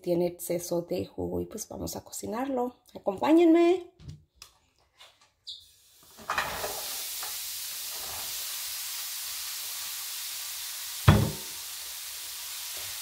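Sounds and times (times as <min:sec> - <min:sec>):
mushrooms sizzling in a frying pan: 0:05.7 - 0:13.0.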